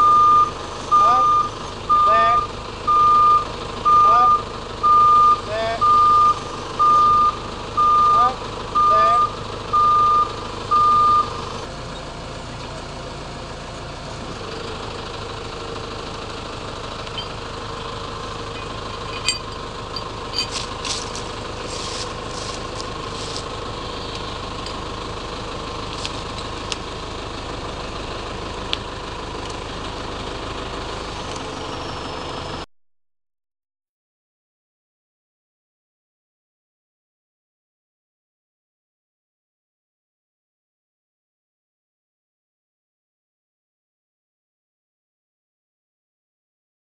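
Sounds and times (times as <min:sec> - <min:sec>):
reversing beeps: 0:00.0 - 0:11.6, 0:17.1 - 0:17.4
diesel engine running: 0:00.0 - 0:32.7.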